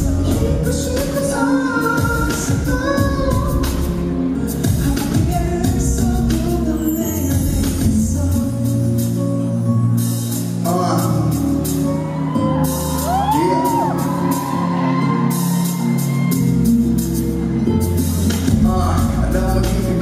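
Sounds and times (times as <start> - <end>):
person singing: 0.0 - 10.1, 17.9 - 20.0
live pop music: 0.0 - 20.0
audience shouting: 11.7 - 16.6.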